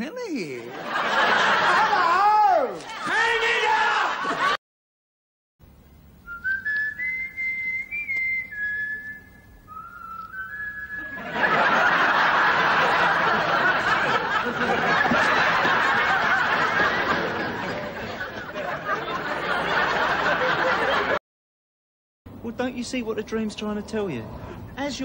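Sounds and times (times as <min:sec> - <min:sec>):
audience laughing: 0:00.4 - 0:04.6, 0:11.0 - 0:21.2
person whistling a tune: 0:06.3 - 0:11.2.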